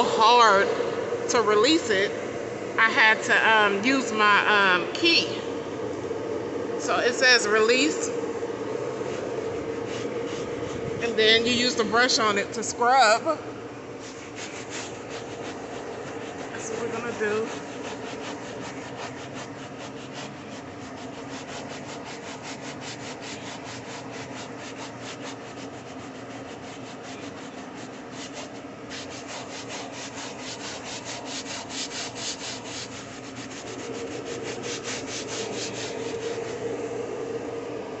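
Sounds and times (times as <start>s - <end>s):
brush scrubbing fabric seat: 8.7s - 12.4s, 14.0s - 37.1s.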